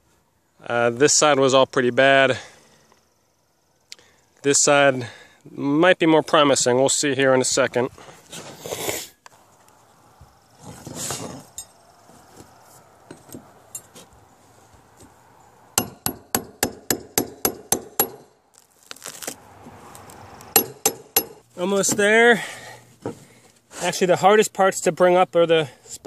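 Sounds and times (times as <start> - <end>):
scraping rustle: 8.0 - 9.7, 10.6 - 15.2, 18.5 - 20.2
hammer striking steel pry bar: 15.8 - 18.3, 20.5 - 21.4.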